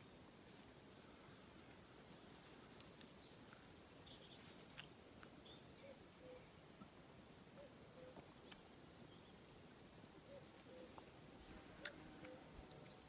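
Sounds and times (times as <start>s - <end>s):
distant bird chirps: 2.8s - 6.9s, 7.6s - 9.5s, 10.2s - 11.1s.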